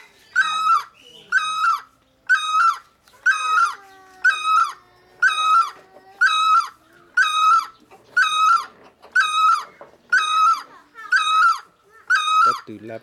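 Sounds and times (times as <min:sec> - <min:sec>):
bird ringing call: 0:06.4 - 0:12.7.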